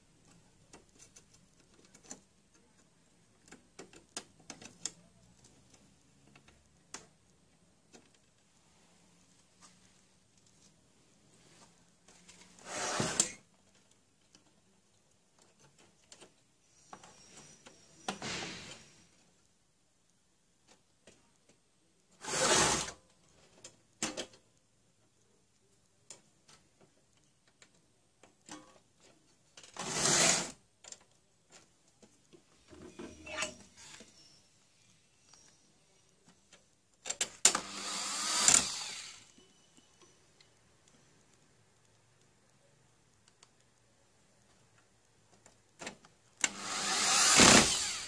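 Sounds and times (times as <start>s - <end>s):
plastic parts scraping: 12.0s - 14.6s.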